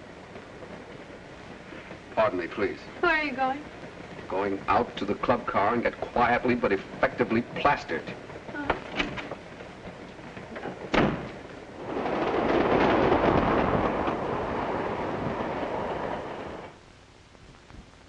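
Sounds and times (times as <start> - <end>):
passenger train rushing past: 11.7 - 16.8.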